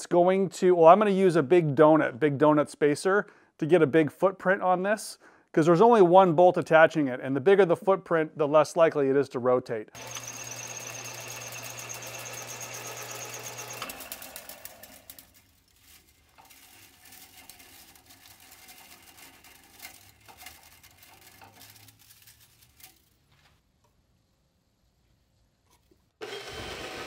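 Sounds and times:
drill press drilling metal: 10.0 - 15.4, 26.2 - 27.0
metal clinks and scrapes: 14.4 - 23.3.

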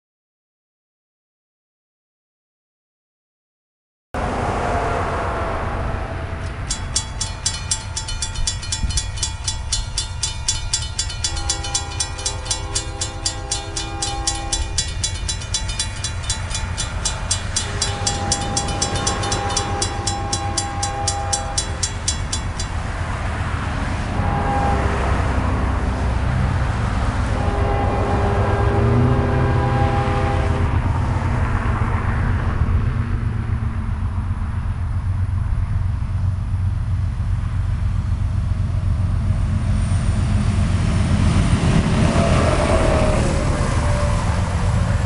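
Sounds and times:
locomotive horn blasts: 6.2 - 22.8, 24.0 - 26.2, 27.2 - 31.0, 41.7 - 45.0
railroad crossing bell ringing: 6.4 - 24.8.

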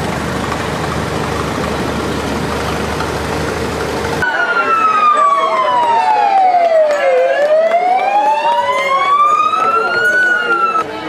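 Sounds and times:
tractor engines running: 0.0 - 11.0
siren wailing: 4.2 - 10.9.

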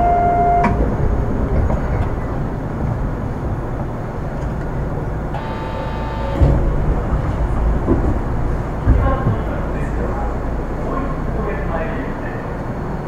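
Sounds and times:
train car rumbling in motion: 0.0 - 13.0
high multi-tone whine: 5.3 - 9.2
thump: 6.3 - 8.2.

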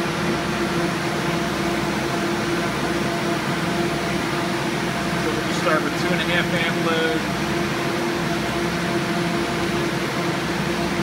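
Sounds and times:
fan hiss: 0.0 - 11.0
motor hum and whine: 0.0 - 11.0.

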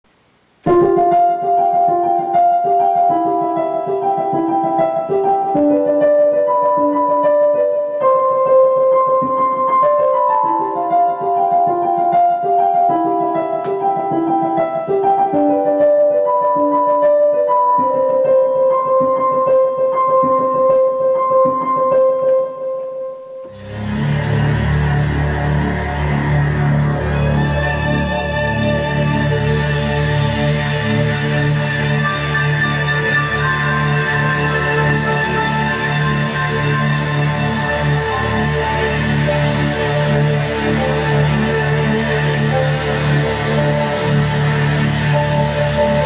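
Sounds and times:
piano-like synth melody: 0.6 - 46.0
dense low drone: 23.6 - 46.0.

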